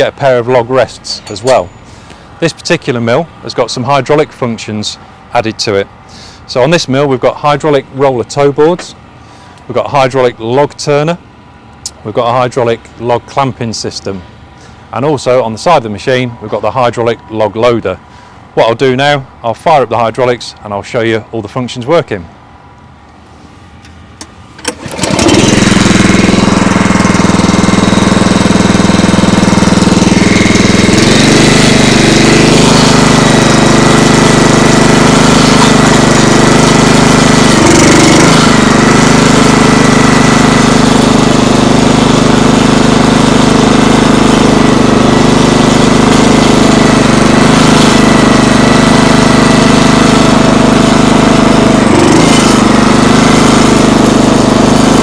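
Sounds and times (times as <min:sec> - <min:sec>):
small engine running: 0:00.2 - 0:06.5, 0:24.6 - 0:55.0
small engine pull-started: 0:24.2 - 0:55.0.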